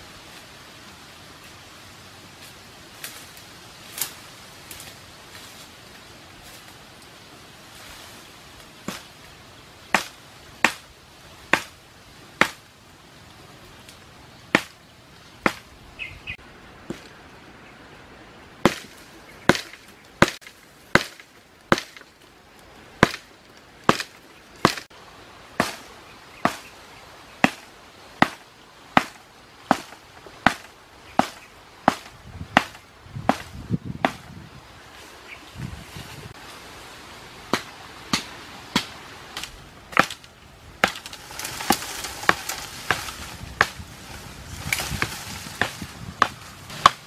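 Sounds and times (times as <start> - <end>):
blade chopping woody stem: 9.9 - 10.9, 12.4 - 12.6, 14.5 - 14.8, 15.4 - 15.6, 18.6 - 22.1, 23.0 - 24.9, 28.2 - 28.4, 29.0 - 34.3, 37.5 - 43.8, 44.6 - 47.0.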